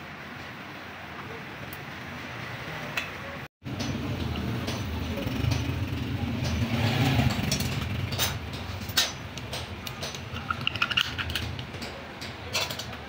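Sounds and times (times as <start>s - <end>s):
hand tools clicking on metal: 3.7s - 13.0s.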